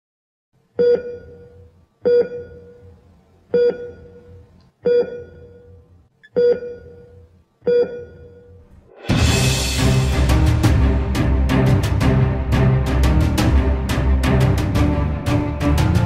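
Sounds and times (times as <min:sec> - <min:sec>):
heart monitor beeps: 0:00.8 - 0:08.6.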